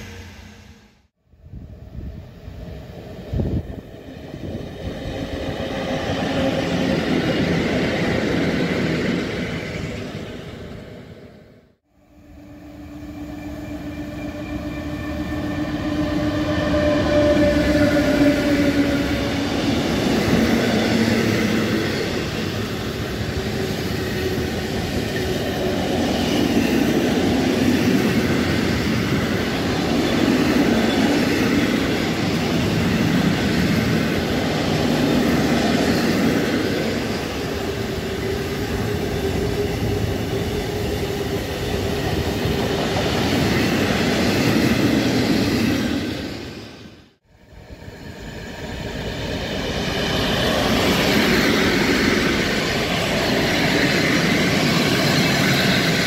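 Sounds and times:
locomotive whine: 0.0 - 56.0.

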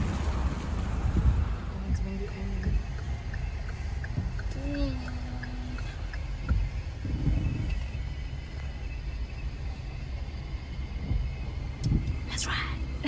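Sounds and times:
car bumps: 0.0 - 8.1
car road and engine rumble: 0.0 - 13.0.

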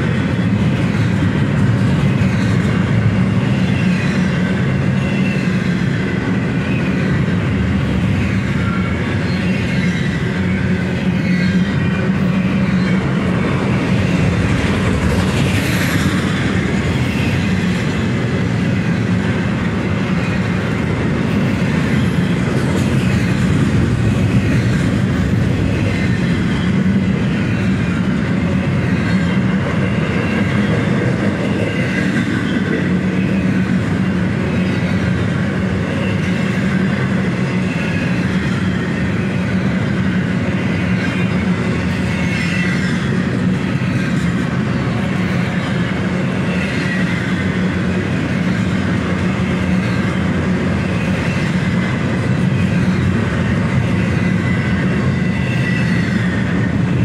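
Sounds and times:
train wheels rumbling on rails: 0.0 - 57.0
high wheel squeal: 8.1 - 14.9, 48.5 - 57.0.

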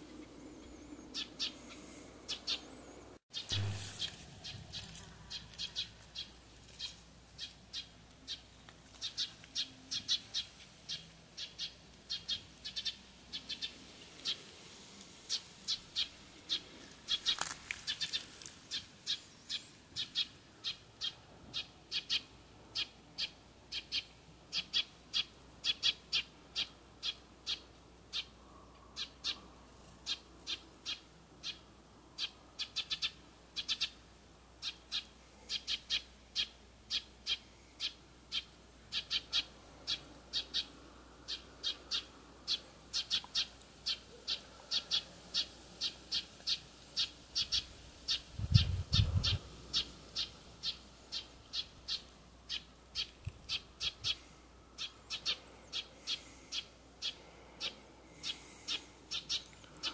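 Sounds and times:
bird sharp high call: 3.4 - 6.3.

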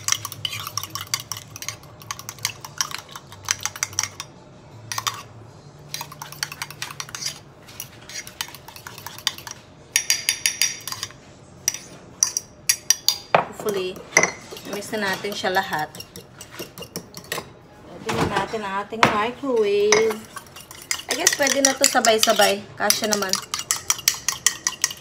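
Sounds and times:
fork clinking against mug: 19.9 - 25.0.

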